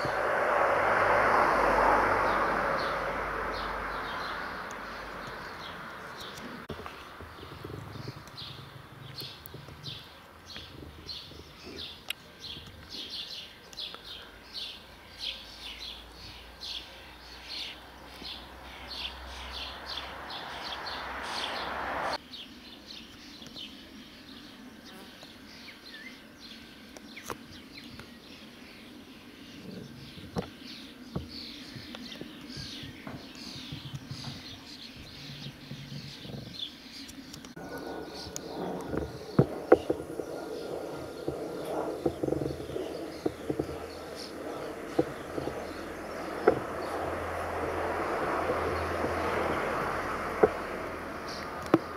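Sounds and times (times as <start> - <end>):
rushing noise: 0.0 - 6.7, 18.4 - 22.2
small birds chirping: 0.0 - 51.9.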